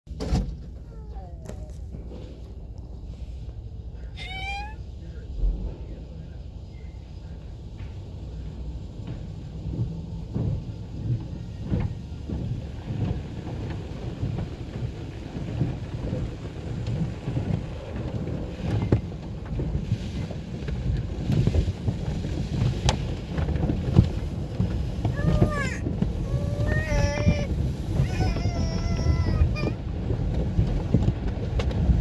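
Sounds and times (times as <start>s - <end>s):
low rumble: 0.5s - 32.0s
water washing over glass: 8.7s - 32.0s
cloth brushes scrubbing car: 9.5s - 31.2s.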